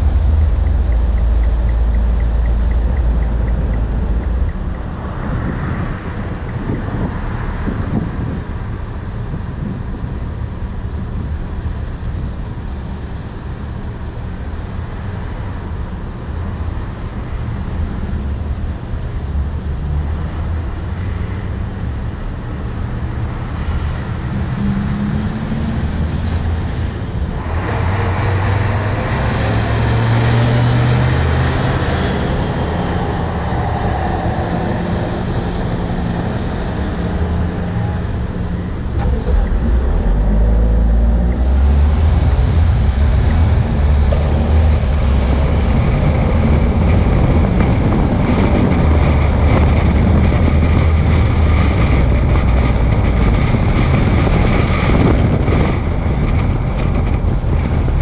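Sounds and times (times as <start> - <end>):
rushing noise: 0.0 - 58.0
vehicle engine rumbling: 0.0 - 58.0.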